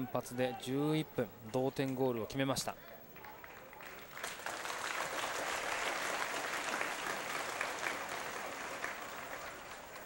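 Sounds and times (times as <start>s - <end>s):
stadium crowd applauding: 2.8s - 10.0s.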